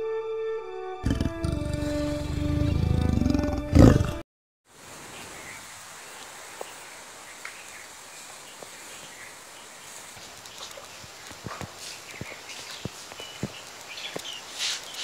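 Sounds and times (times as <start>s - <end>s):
big cat roar effect: 1.0s - 4.2s
faint clicks: 10.1s - 15.0s.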